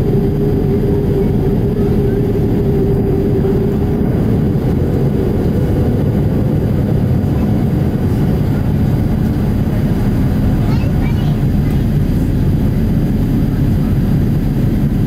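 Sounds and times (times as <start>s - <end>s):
humming tone: 0.0s - 9.6s
jet engine rumble in cabin: 0.0s - 15.0s.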